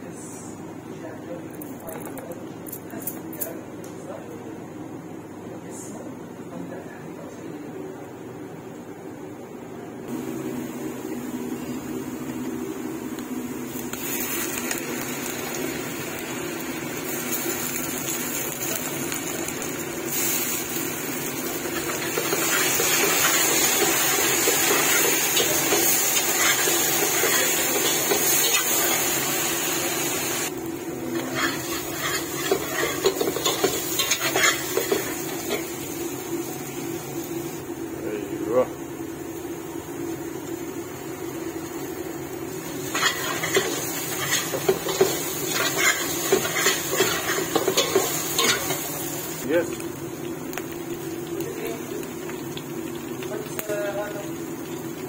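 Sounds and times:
onions sizzling in oil: 0:10.1 - 0:38.0, 0:38.9 - 0:55.0.

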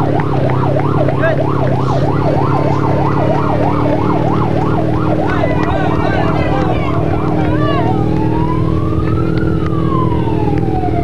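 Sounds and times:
siren yelping: 0:00.0 - 0:11.0.

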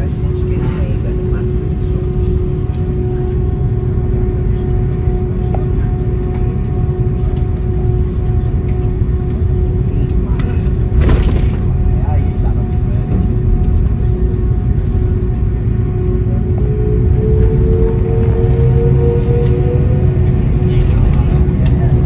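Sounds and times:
jet engines rumbling in cabin: 0:00.0 - 0:22.0.

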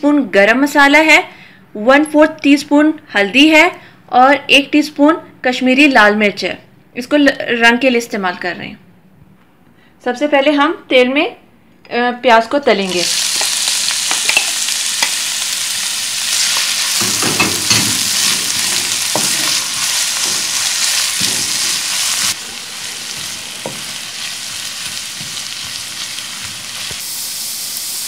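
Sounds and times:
onions sizzling in hot oil: 0:12.9 - 0:28.0.

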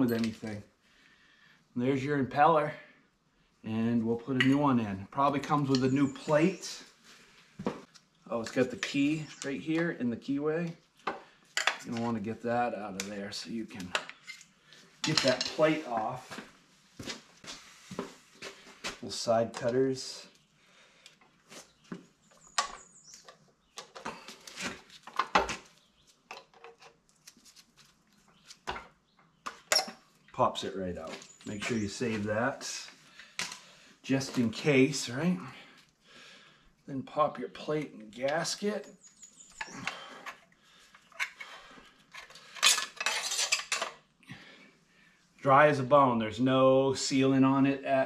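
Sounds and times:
light metallic clinks and scrapes: 0:00.0 - 0:00.6, 0:13.9 - 0:16.1, 0:29.7 - 0:30.0, 0:41.1 - 0:44.0.

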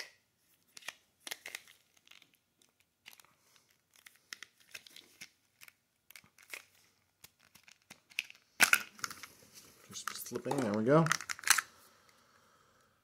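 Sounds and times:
small box clicking and crinkling: 0:00.7 - 0:09.3, 0:10.0 - 0:11.7.

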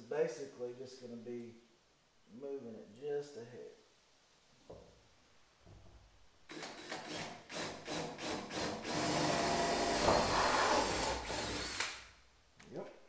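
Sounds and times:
power tool running: 0:06.5 - 0:11.9.

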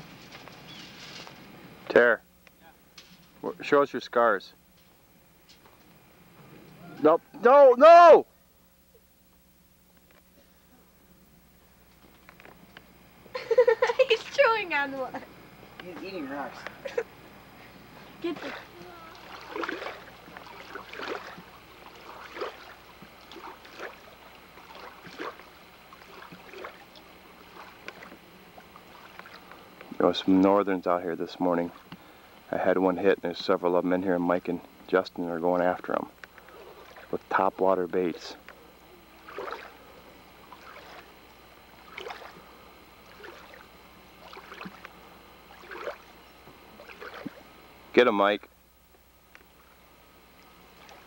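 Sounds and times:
small waves lapping: 0:17.9 - 0:32.5, 0:36.3 - 0:37.5, 0:38.4 - 0:47.6, 0:49.5 - 0:51.0
paddle splashing in water: 0:18.3 - 0:29.5, 0:36.4 - 0:37.2, 0:39.2 - 0:39.8, 0:40.4 - 0:41.2, 0:41.8 - 0:42.4, 0:43.0 - 0:44.9, 0:45.5 - 0:46.1, 0:46.8 - 0:47.4.

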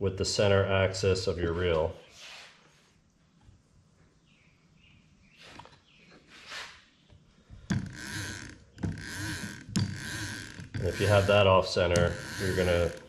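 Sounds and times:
fishing reel whirring: 0:07.9 - 0:13.0.

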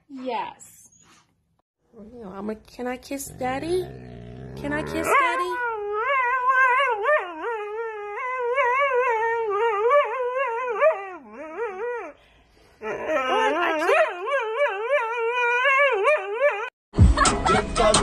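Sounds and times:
dog howling whine: 0:05.0 - 0:12.1.

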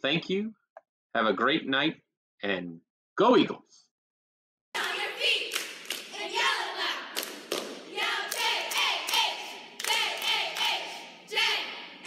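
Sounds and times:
cheerleaders shouting in unison: 0:04.8 - 0:12.0
rhythmic clapping: 0:04.8 - 0:12.0.

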